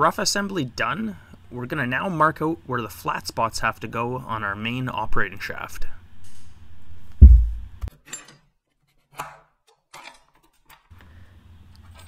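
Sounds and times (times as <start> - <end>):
heavy metal thud on workbench: 7.2 - 7.8.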